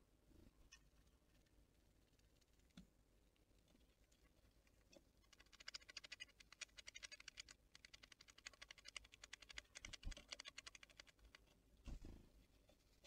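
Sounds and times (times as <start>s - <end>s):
small animal tapping at seed feeder: 5.4s - 11.4s.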